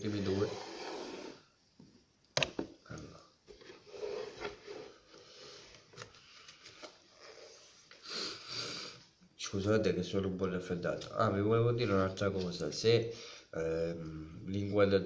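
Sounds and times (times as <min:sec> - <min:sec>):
man sniffing: 0:08.0 - 0:09.1.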